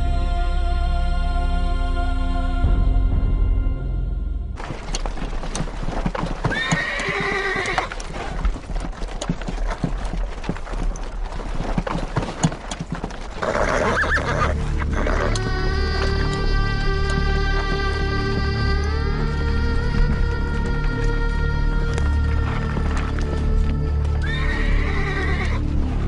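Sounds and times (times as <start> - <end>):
horse hooves clopping: 4.6 - 26.0
horse neighing: 6.4 - 8.2, 13.4 - 17.7, 24.2 - 25.6.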